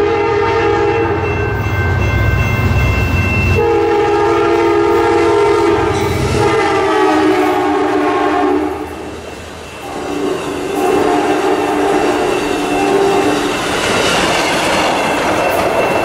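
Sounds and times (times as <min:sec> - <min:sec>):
train air horn blast: 0:00.0 - 0:01.2, 0:03.6 - 0:09.1, 0:09.8 - 0:13.4
train wheels rumbling and clattering: 0:01.1 - 0:16.0.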